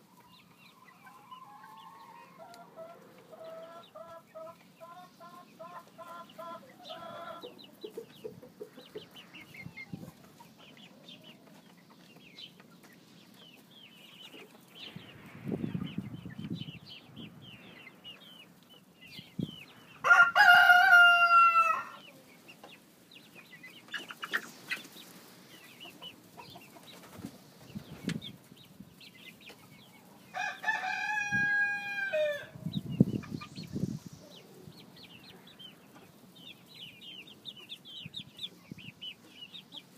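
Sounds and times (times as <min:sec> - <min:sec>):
young chickens clucking and chirping: 0:00.0 - 0:39.9
rooster crowing: 0:20.0 - 0:22.1, 0:30.3 - 0:32.6.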